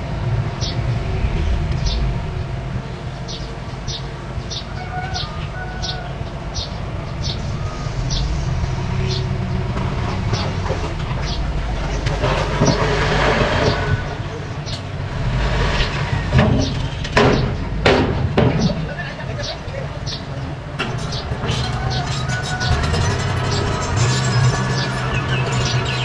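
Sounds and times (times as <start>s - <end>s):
rush of noise: 0.0s - 23.2s
bulldozer diesel engine running: 0.0s - 26.0s
sharp clank of tracks: 9.7s - 19.2s.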